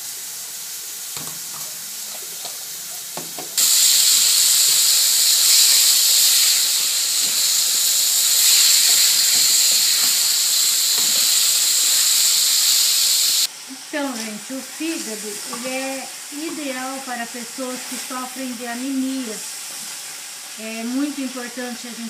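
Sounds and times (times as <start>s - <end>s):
meat sizzling in hot oil: 0.0s - 22.0s.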